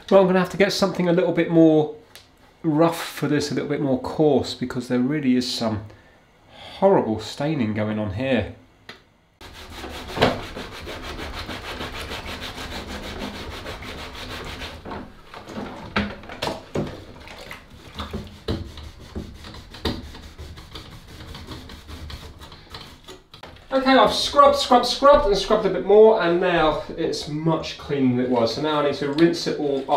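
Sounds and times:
sponge scrubbing in soapy water: 9.4 - 15.8, 17.0 - 23.1.

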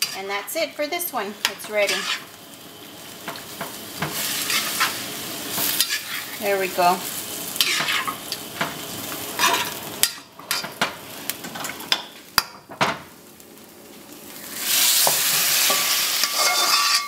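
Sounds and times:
food sizzling in a wok: 0.0 - 17.0
metal spatula clanking on wok: 15.7 - 17.0.

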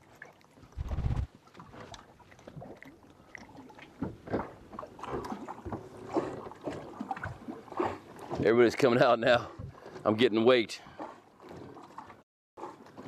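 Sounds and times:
knocks and rustles handling fish: 4.0 - 7.4.

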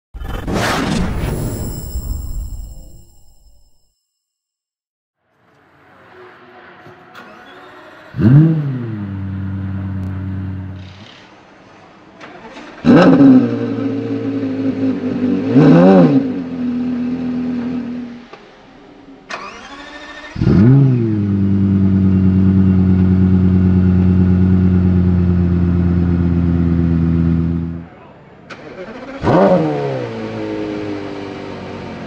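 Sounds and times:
engine rev blip: 7.1 - 11.2, 19.3 - 23.4
sports car engine starting and idling: 7.1 - 11.4, 12.0 - 18.5, 19.2 - 32.0
rising starter whine: 19.3 - 26.2.

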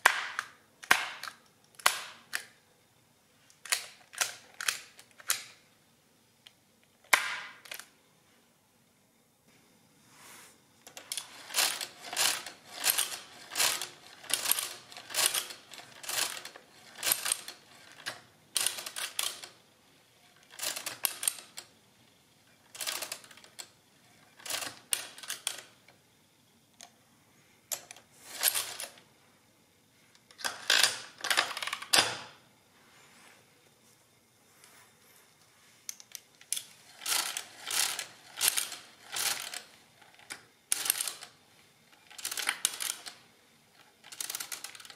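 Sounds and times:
mechanical calculator gears clattering: 10.9 - 19.6, 20.3 - 21.7, 22.5 - 25.8, 27.7 - 29.0, 30.4 - 32.3, 36.4 - 44.9.

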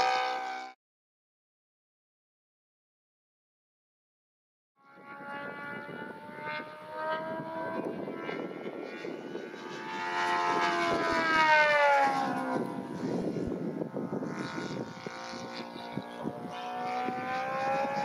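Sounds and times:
model plane engine drone: 0.0 - 0.8, 4.8 - 18.0.

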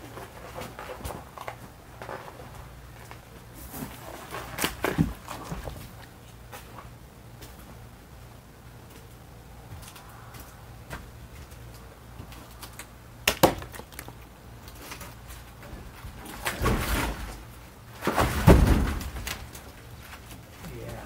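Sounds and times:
logs thudding and scraping: 3.5 - 6.1, 10.8 - 21.0.

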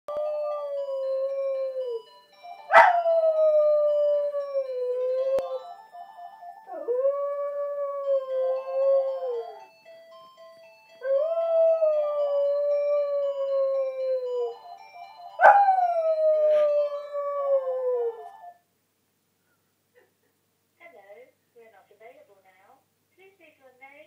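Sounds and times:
phone ringtone melody: 0.4 - 7.0, 7.9 - 17.4, 18.1 - 18.6
dog howling: 2.7 - 5.6.

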